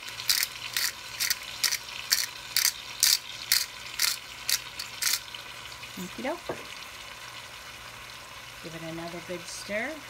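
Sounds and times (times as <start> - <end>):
pepper mill grinding: 0.0 - 6.2.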